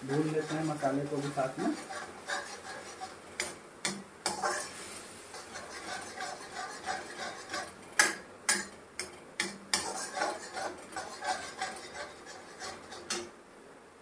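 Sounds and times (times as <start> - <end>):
metal spatula scraping pan: 0.0 - 8.7, 9.4 - 13.3.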